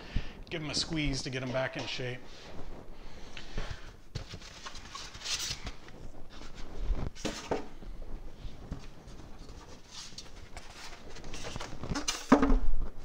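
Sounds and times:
rustling in cardboard box: 4.2s - 12.1s.

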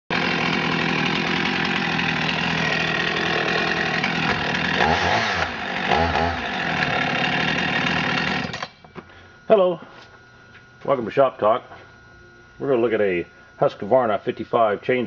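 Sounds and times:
chainsaw engine running: 0.1s - 9.8s.

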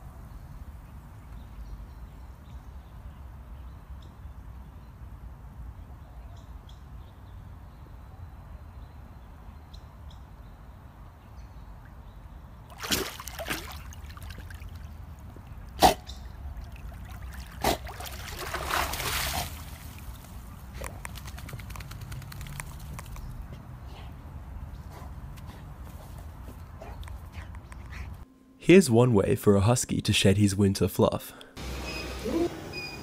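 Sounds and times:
water splashing and sloshing: 12.6s - 21.2s.

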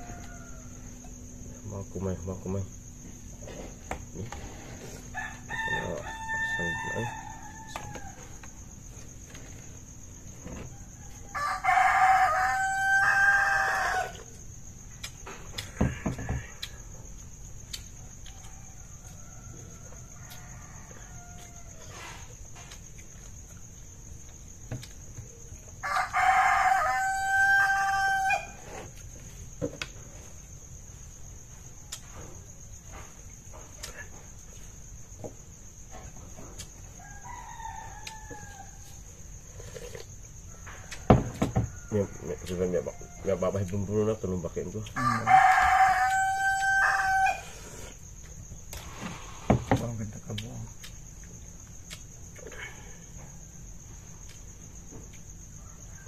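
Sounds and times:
rooster crowing: 0.0s - 1.6s, 3.9s - 14.4s, 18.0s - 22.3s, 25.3s - 29.0s, 35.7s - 48.2s, 55.5s - 56.0s
insects chirring: 0.0s - 56.0s.

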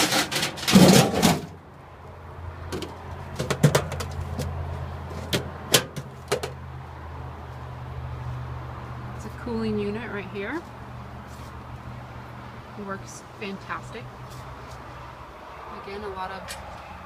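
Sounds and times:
metal clicks and knocks: 2.7s - 4.6s.

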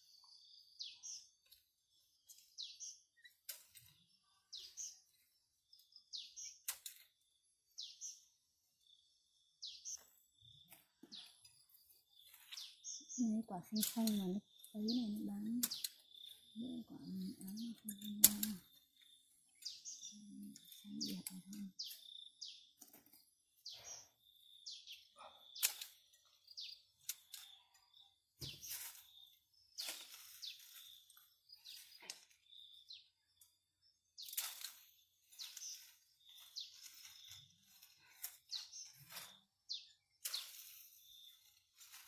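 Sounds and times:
birds chirping: 0.0s - 41.8s
lemons being picked by hand: 9.9s - 22.1s, 25.6s - 42.0s.

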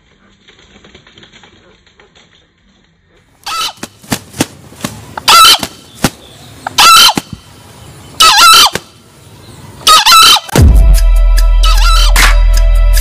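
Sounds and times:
junglefowl crowing: 3.4s - 4.0s, 5.2s - 5.9s, 6.6s - 7.4s, 8.2s - 8.9s, 9.8s - 10.6s, 11.6s - 12.4s.

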